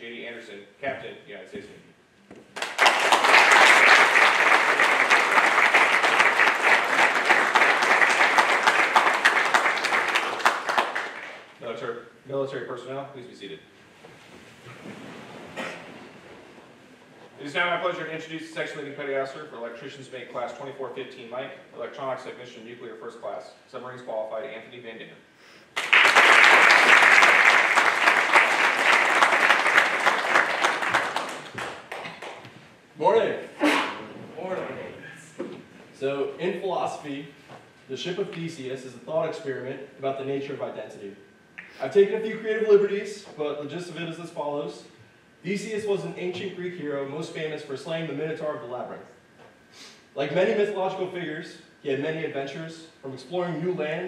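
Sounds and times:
audience applause: 0:02.6 - 0:11.5, 0:25.8 - 0:32.5.

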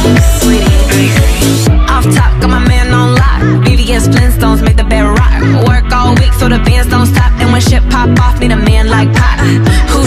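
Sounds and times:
electronic dance-pop music: 0:00.0 - 0:10.0.

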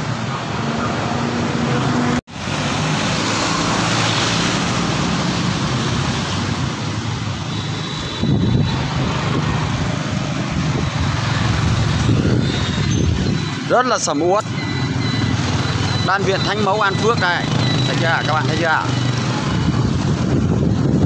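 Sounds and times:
other motorbikes: 0:00.0 - 0:21.0
motorbike engine: 0:01.4 - 0:21.0
wind on microphone: 0:08.0 - 0:13.6, 0:19.1 - 0:21.0.

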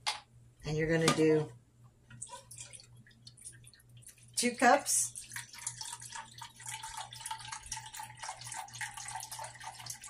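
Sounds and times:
broth pouring into plastic cup: 0:02.4 - 0:10.0.

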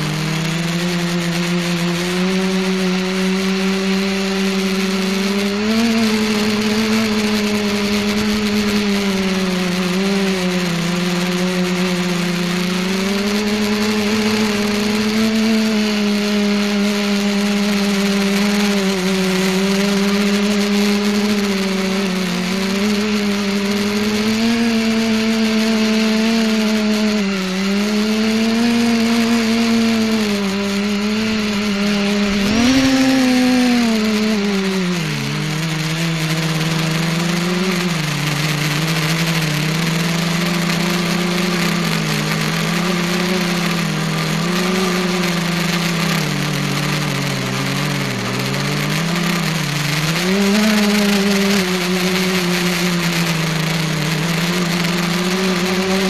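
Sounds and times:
multicopter propellers whirring: 0:00.0 - 0:56.0.

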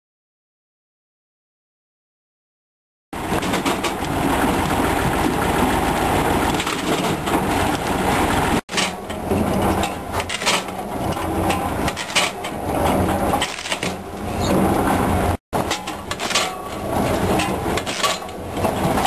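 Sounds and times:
firewood processor clattering: 0:08.7 - 0:14.0, 0:15.6 - 0:19.0.

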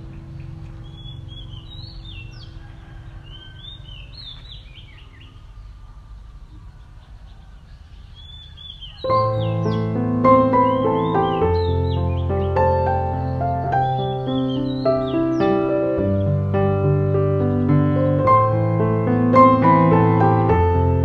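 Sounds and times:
low outdoor rumble: 0:00.0 - 0:08.2
birds chirping: 0:00.0 - 0:21.0
background music: 0:09.1 - 0:21.0.

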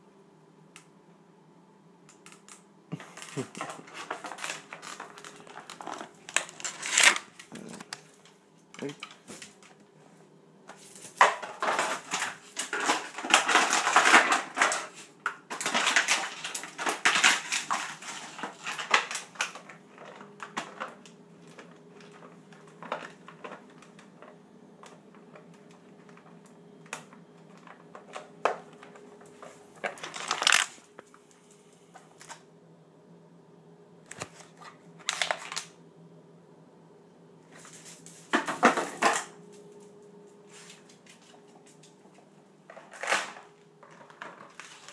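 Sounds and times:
plastic bottle crackling: 0:03.0 - 0:08.1, 0:11.0 - 0:30.8, 0:42.7 - 0:44.9.

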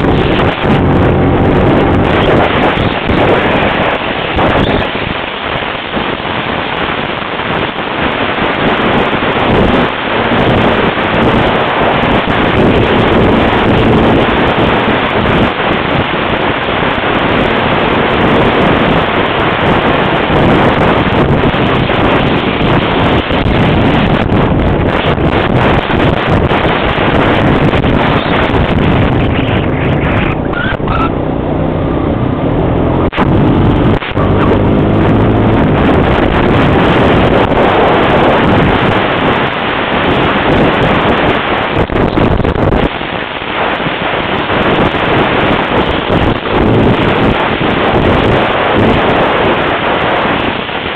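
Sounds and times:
atv engine running: 0:00.0 - 0:04.9, 0:20.5 - 0:39.1
wind buffeting microphone: 0:00.0 - 0:50.9.

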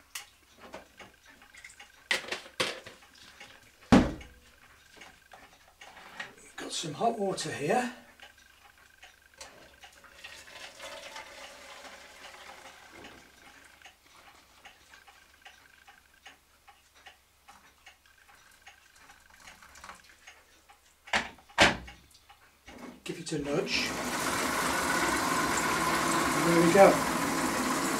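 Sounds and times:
steady ticking: 0:03.0 - 0:10.3, 0:11.2 - 0:22.8
water pouring into plastic tank: 0:10.0 - 0:13.4, 0:23.9 - 0:27.9
sharp clunk: 0:21.1 - 0:21.9.

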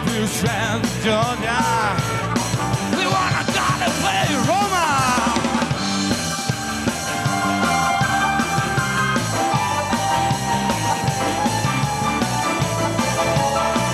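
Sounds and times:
blues-rock band playing: 0:00.0 - 0:13.9
sliding electric guitar lead: 0:00.0 - 0:13.9.

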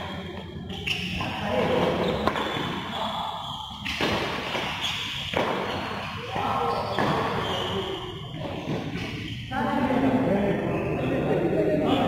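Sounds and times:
racket hitting shuttlecock: 0:03.8 - 0:06.1.

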